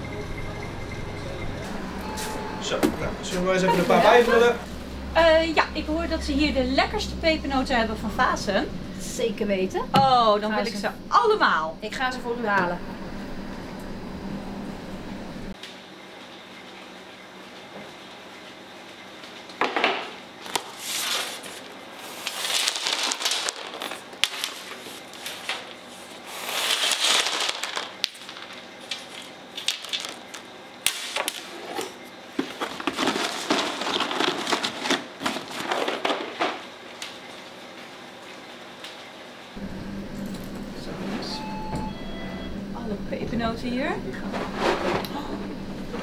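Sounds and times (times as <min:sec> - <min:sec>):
cookies rattling off metal trays: 0:22.1 - 0:25.8, 0:26.4 - 0:31.8, 0:32.4 - 0:36.7.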